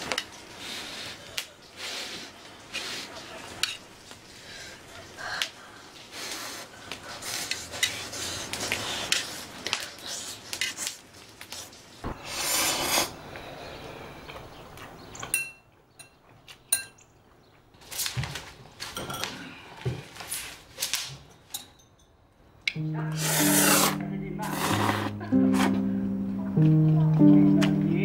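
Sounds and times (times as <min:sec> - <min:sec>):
utensils clinking on metal pot: 0:15.3 - 0:17.0.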